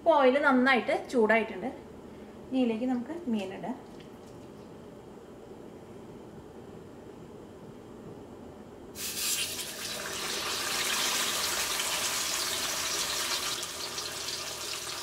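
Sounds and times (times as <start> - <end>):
fish sizzling in hot oil: 9.0 - 15.0.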